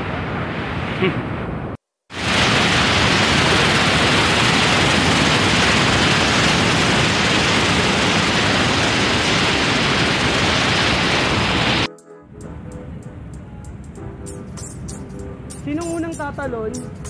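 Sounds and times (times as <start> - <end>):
whitewater rapids rushing: 2.2 - 11.9.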